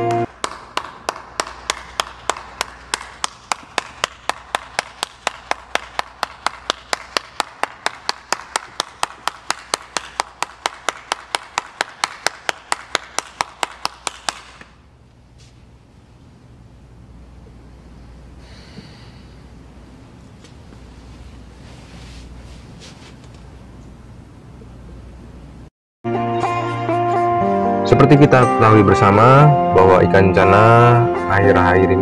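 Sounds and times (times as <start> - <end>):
person clapping hands: 0.0 - 14.8.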